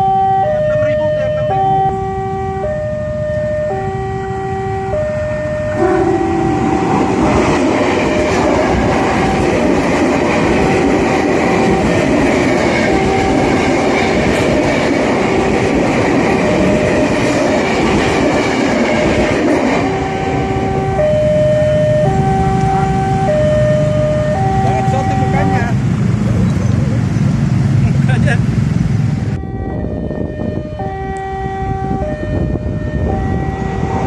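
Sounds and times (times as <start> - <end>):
railroad crossing alarm: 0.0 - 25.9, 29.3 - 34.0
electric train rumbling past: 0.0 - 34.0.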